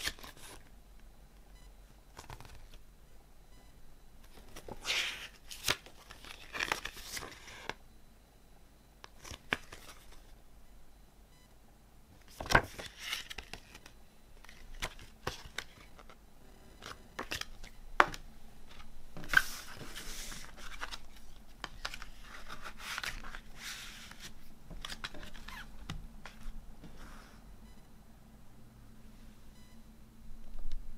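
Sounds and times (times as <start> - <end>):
paper pages rustling: 18.7 - 27.1.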